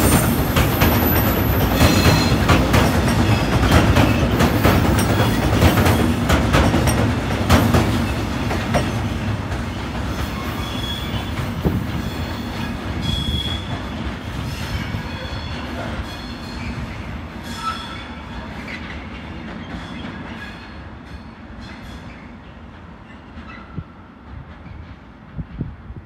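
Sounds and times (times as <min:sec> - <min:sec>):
train wheels clacking over rail joints: 0:00.0 - 0:20.6
train wheel squeals: 0:00.0 - 0:25.2.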